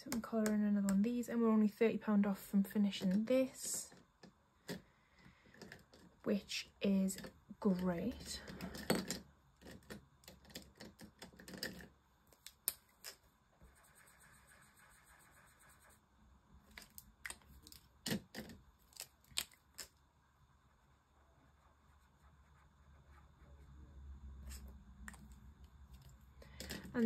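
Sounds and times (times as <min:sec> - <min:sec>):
marker scribbling on paper: 0:13.6 - 0:16.0.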